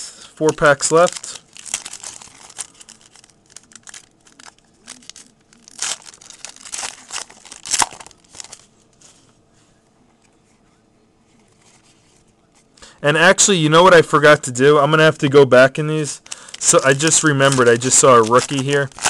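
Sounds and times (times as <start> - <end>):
foil wrapper tearing and crinkling: 0.4 - 8.6, 16.2 - 19.0.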